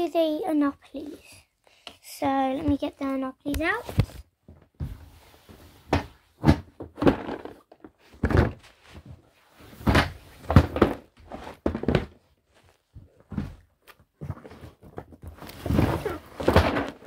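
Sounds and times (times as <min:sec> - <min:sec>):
boxes knocking together: 0:06.4 - 0:08.6, 0:09.8 - 0:12.2, 0:14.3 - 0:17.0.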